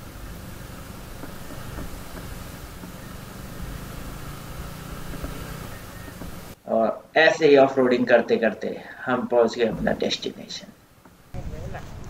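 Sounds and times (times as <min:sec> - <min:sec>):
motorcycle engine running low: 0:00.0 - 0:06.6, 0:11.2 - 0:12.0
wind and road noise: 0:00.0 - 0:06.6, 0:09.3 - 0:12.0.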